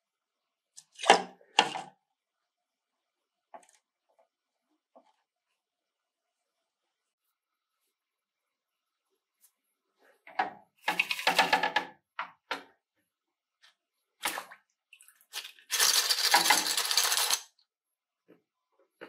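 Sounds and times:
metal parts rattling in a strainer: 15.7 - 17.5.

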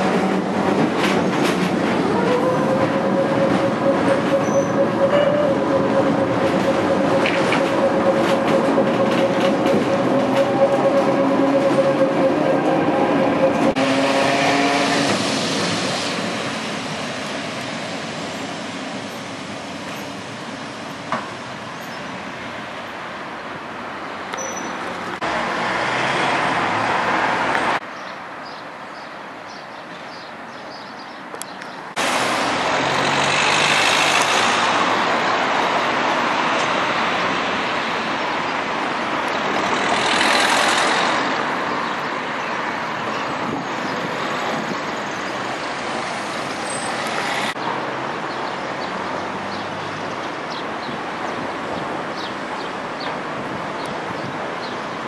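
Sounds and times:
tram running with whine: 0.0 - 25.7, 32.0 - 47.6
street noise: 0.0 - 55.0
vehicles passing: 0.0 - 55.0.

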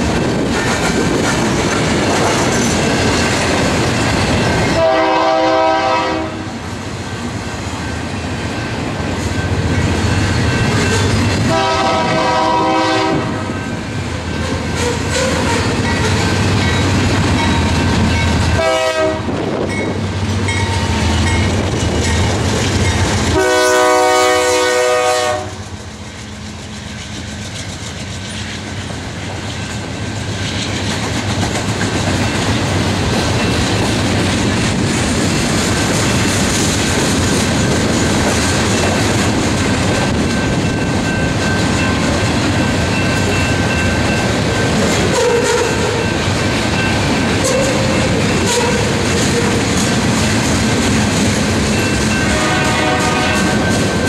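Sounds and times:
freight train wheel clatter: 0.0 - 54.0
locomotive air horn: 4.8 - 6.6, 11.5 - 13.5, 18.6 - 19.4, 23.3 - 25.7, 45.1 - 46.0, 47.4 - 49.5, 52.2 - 53.7.

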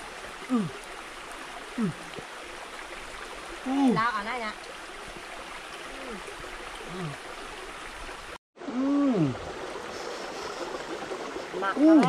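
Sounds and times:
stream rushing: 0.0 - 12.0
person murmuring: 0.5 - 0.8, 1.8 - 2.1.

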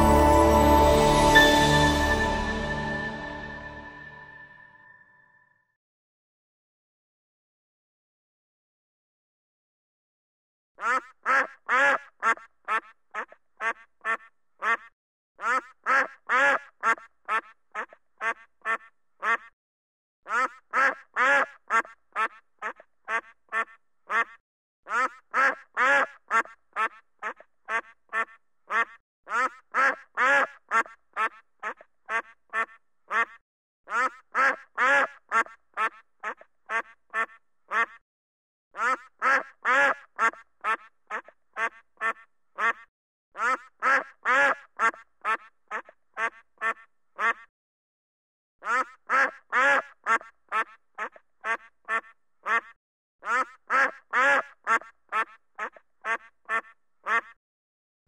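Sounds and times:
duck quacking: 10.8 - 19.6, 20.3 - 38.0, 38.8 - 47.5, 48.6 - 57.4.

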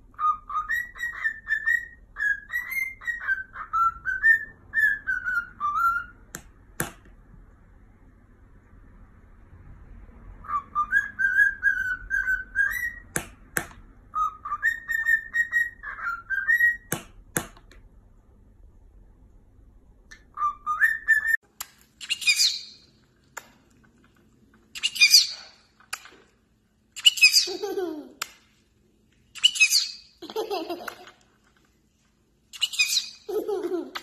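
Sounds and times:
cockatiel whistling a tune: 0.1 - 6.3, 10.4 - 13.2, 14.1 - 16.9, 20.1 - 21.4, 22.0 - 22.8, 24.8 - 25.4, 29.4 - 30.1, 32.6 - 33.2
harsh parrot chirps: 22.0 - 22.9, 24.8 - 25.7, 27.0 - 27.7, 29.3 - 30.2, 32.5 - 33.3.

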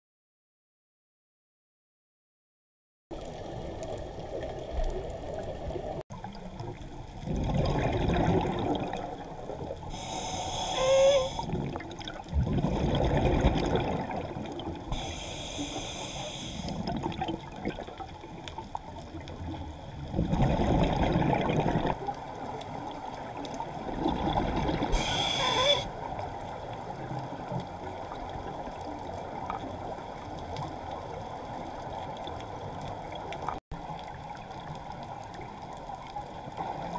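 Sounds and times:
exhaled bubbles rumbling: 3.1 - 10.2, 10.8 - 15.0, 16.7 - 36.9
regulator hissing inhalations: 9.9 - 11.5, 14.9 - 16.8, 24.9 - 25.9.

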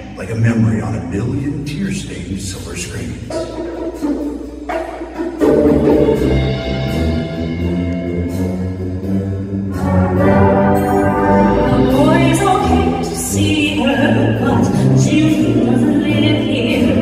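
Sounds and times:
concert band playing chords: 0.0 - 17.0.

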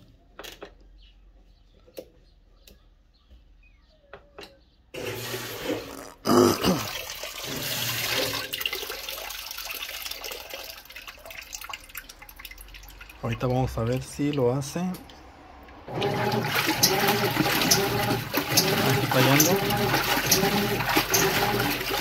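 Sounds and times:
water rushing into washing machine tub: 5.0 - 22.0.

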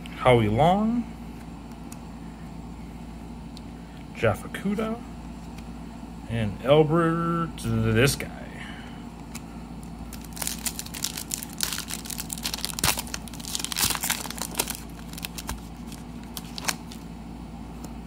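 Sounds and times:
foil pack crinkling: 9.8 - 17.1.

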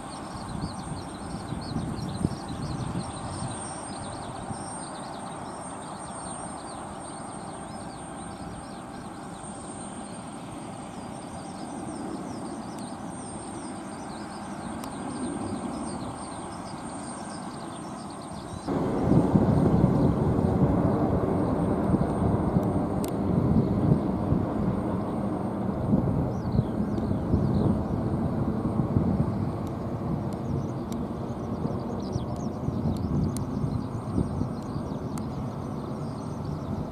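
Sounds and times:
birds chirping: 0.0 - 21.1, 26.3 - 28.4, 29.3 - 36.9
distant jet engine rumble: 0.0 - 36.9.

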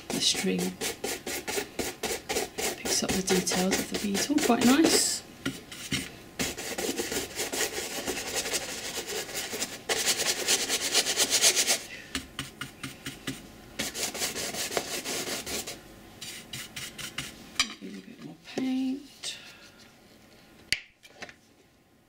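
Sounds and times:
paintbrush scratching on canvas: 0.0 - 17.4.

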